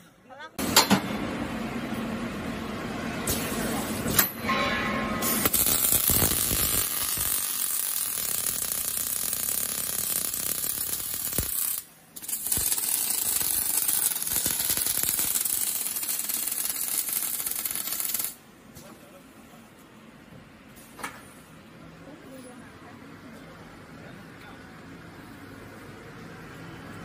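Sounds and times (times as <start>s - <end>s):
arc welding crackle: 5.2s - 18.4s.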